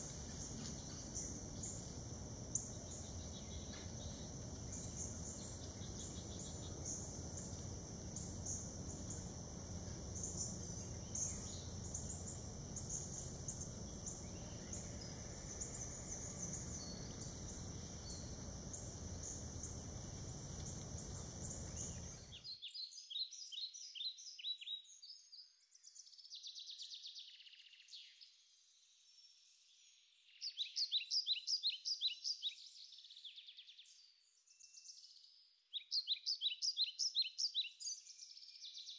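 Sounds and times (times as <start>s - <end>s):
low background rumble: 0.0s - 22.3s
high insect drone: 0.0s - 22.4s
bird chirps: 0.0s - 25.1s.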